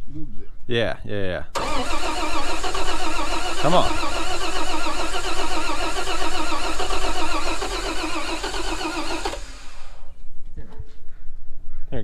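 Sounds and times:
truck engine cranking on starter: 1.6s - 10.1s.

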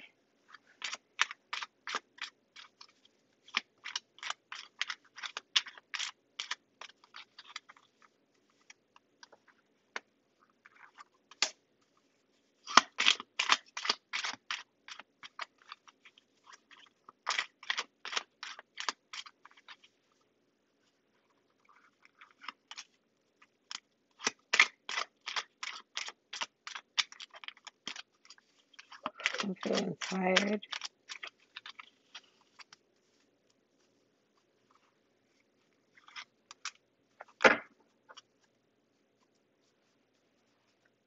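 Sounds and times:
cards being shuffled: 0.5s - 9.4s, 23.7s - 34.1s.

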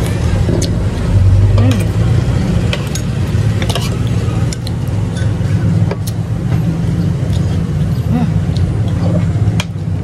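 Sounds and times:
vehicle engine rumbling: 0.0s - 10.0s.

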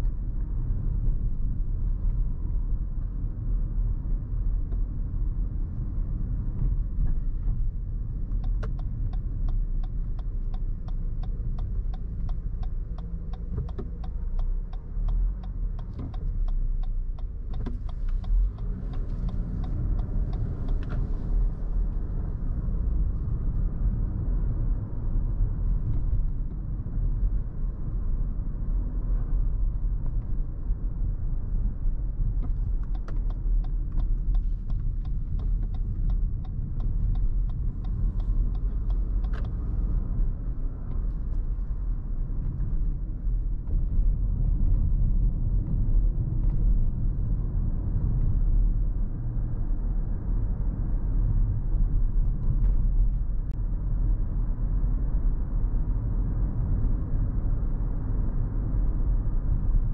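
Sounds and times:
road and engine rumble: 0.0s - 59.9s
turn signal ticking: 4.4s - 24.7s, 29.1s - 48.8s.

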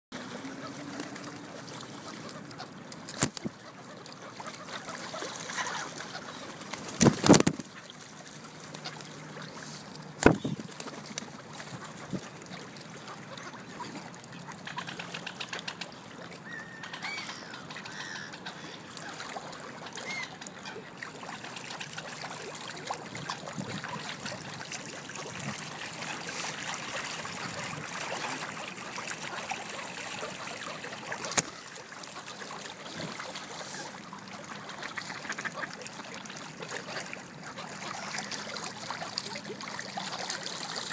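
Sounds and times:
water lapping against stone: 0.2s - 16.4s, 17.3s - 40.9s
faint bird calls: 13.2s - 21.0s.

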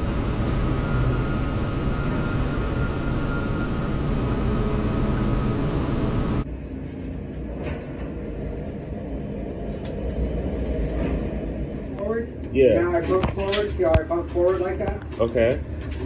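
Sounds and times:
crane cab mechanical rumble: 0.0s - 6.4s.

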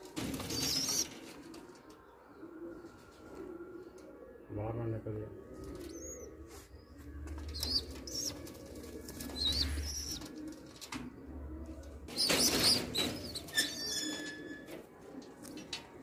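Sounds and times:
pigeons cooing: 0.0s - 16.0s
wings flapping: 0.1s - 1.7s, 12.1s - 13.4s.

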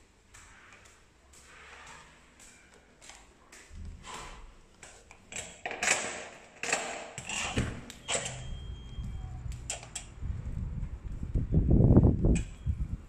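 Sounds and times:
low rumble: 8.4s - 12.2s.

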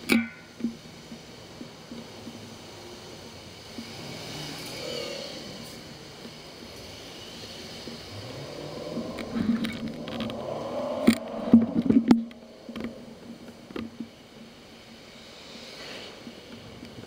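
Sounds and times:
bicycle knocking and rattling: 0.0s - 4.8s, 8.8s - 15.4s
faint traffic: 0.0s - 17.0s.

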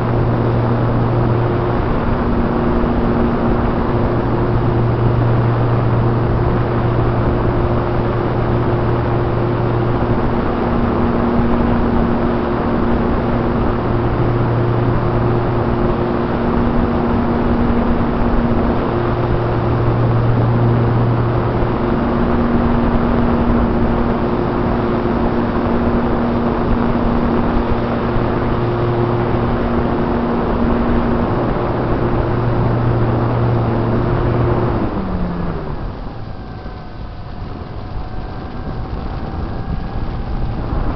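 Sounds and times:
model airplane motor hum: 0.0s - 40.9s
wind rush over airframe: 0.0s - 40.9s.

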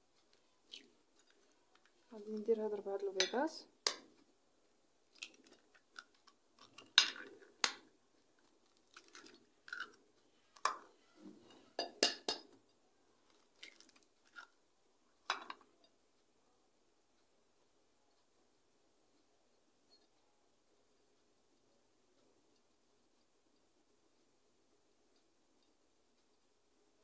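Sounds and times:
eggshells crackling: 5.1s - 10.8s, 13.2s - 14.6s.

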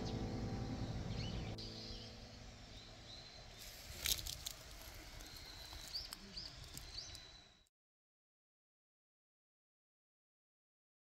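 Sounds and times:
background music: 0.0s - 3.4s
bird chirps: 0.0s - 4.2s, 4.9s - 7.7s.

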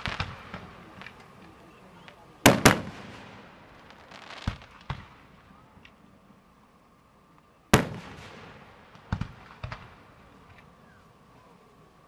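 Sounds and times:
fireworks bursting: 0.0s - 5.9s, 7.7s - 11.4s.

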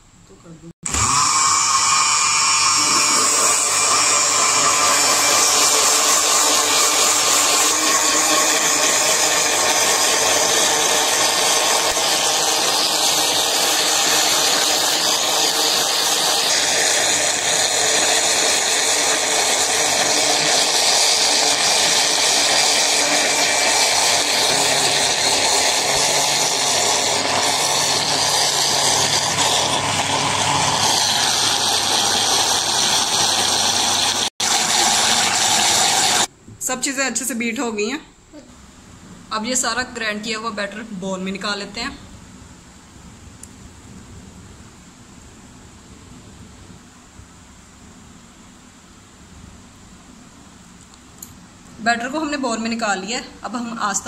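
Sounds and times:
blender motor running: 0.8s - 36.3s.

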